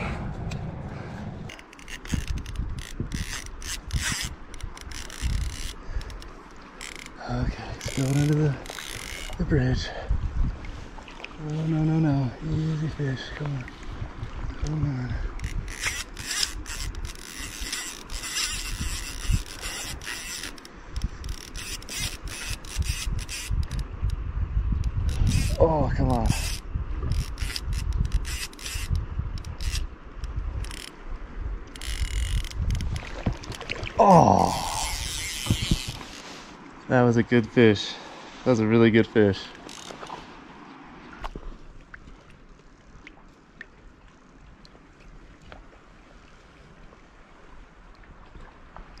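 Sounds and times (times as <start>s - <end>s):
fly reel ratchet clicking: 1.5s - 7.2s, 7.8s - 9.4s, 15.4s - 23.9s, 25.0s - 25.6s, 26.3s - 31.0s, 31.7s - 33.0s, 34.6s - 36.2s, 39.6s - 40.0s.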